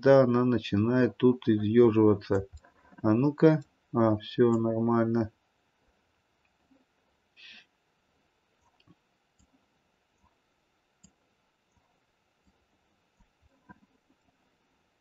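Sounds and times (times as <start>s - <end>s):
soft hiss: 0.0s - 15.0s
computer mouse clicks: 8.6s - 9.6s, 11.0s - 12.6s.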